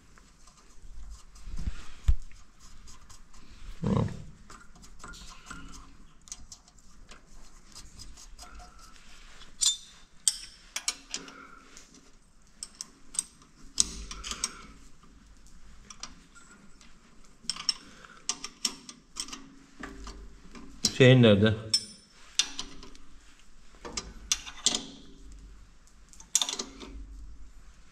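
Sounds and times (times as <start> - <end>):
metal tools clinking: 9.6 - 11.3.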